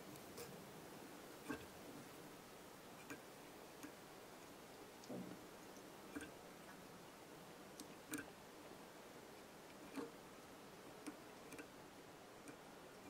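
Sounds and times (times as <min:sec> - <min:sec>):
faint room hiss: 0:00.0 - 0:13.0.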